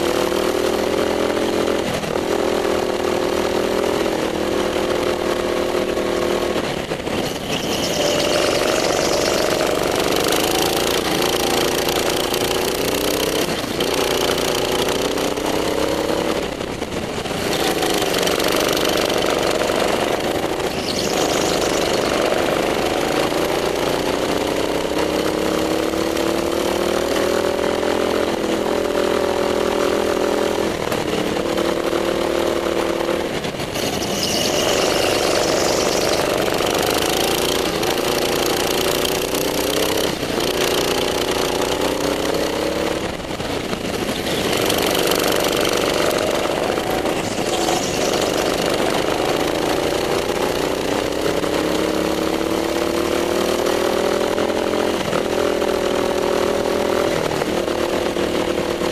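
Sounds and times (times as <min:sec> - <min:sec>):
go-kart engine revving: 0:00.0 - 0:58.9.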